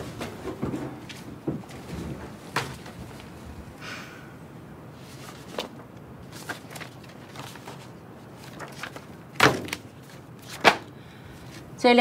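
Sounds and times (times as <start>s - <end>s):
paper rustling: 5.0s - 11.7s.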